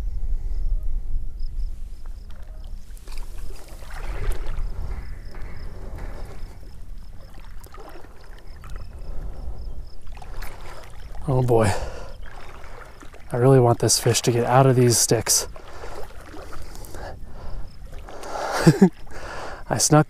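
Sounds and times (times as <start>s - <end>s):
wind rumble on microphone: 0.0s - 19.5s
high insect chirps: 0.6s - 20.0s
water splashing and sloshing: 1.9s - 19.6s.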